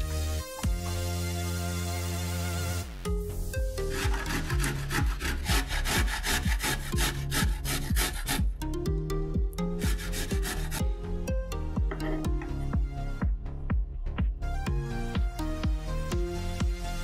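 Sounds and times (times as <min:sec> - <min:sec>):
background music with beat: 0:00.0 - 0:17.0
garlic scraping on metal grater: 0:03.9 - 0:08.5, 0:09.8 - 0:10.8.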